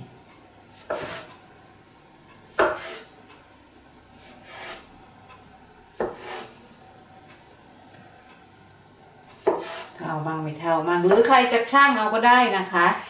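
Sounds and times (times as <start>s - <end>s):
bench scraper scraping: 0.7s - 1.4s, 2.5s - 3.1s, 4.2s - 4.9s, 5.9s - 6.5s, 9.4s - 10.0s.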